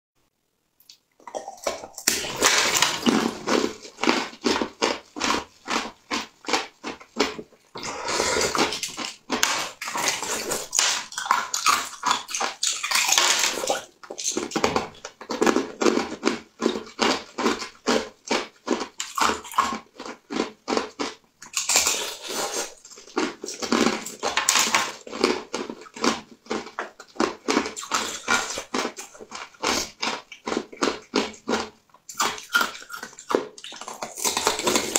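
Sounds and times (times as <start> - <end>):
chewing mouth clicks: 26.8 - 34.9.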